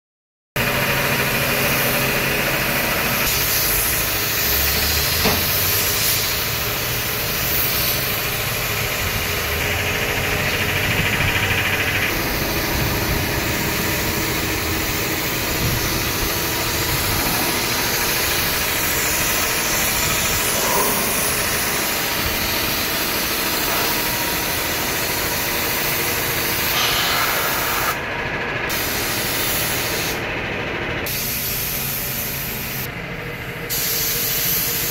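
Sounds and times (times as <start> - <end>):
engine running: 0.6 - 34.9
spray gun hissing: 1.5 - 28.0, 28.7 - 30.3, 31.1 - 32.9, 33.7 - 34.9.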